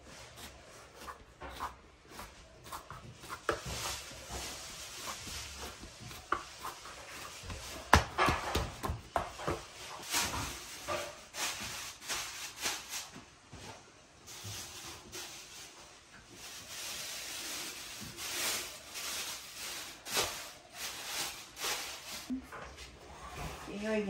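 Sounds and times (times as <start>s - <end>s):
plastic bag rustling and crinkling: 3.2s - 22.4s.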